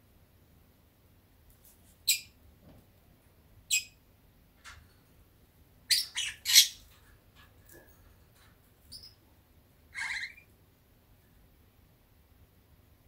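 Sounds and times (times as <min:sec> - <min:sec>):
lovebird chirping: 0:02.0 - 0:02.4, 0:03.7 - 0:04.0, 0:05.9 - 0:06.9, 0:08.9 - 0:09.2, 0:09.9 - 0:10.5.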